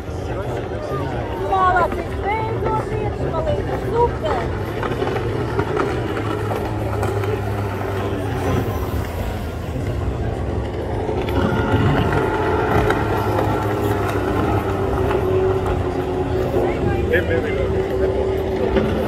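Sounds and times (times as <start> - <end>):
outboard boat engines racing: 0.0 - 19.0.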